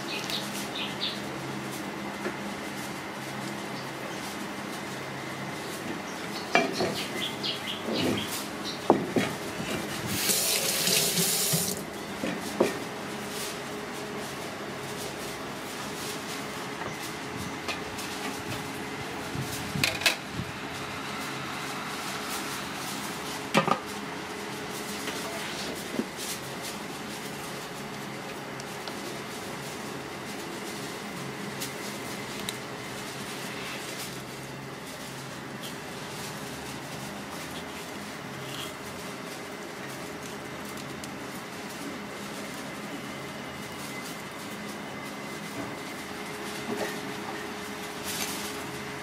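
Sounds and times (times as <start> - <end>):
steady background noise: 0.0 - 49.0
tap water running: 10.2 - 11.8.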